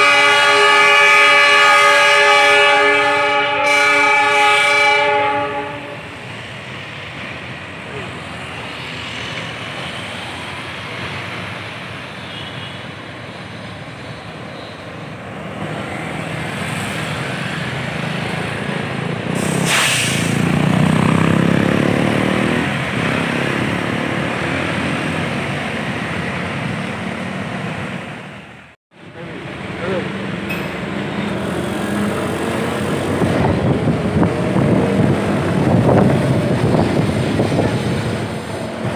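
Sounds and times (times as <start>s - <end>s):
diesel locomotive engine passing: 0.0s - 38.9s
street traffic: 0.0s - 38.9s
short hiss: 19.4s - 20.4s.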